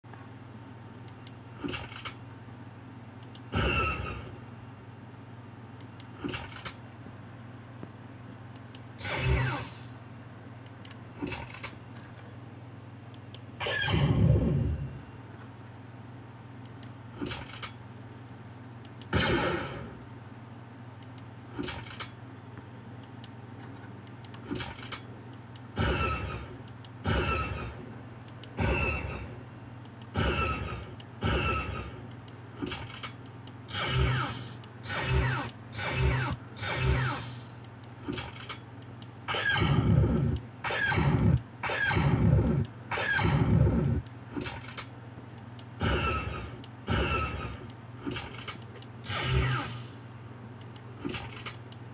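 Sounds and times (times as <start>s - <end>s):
steady low hum: 0.0s - 51.9s
blaster zaps from small speaker: 34.0s - 37.4s, 49.0s - 50.0s.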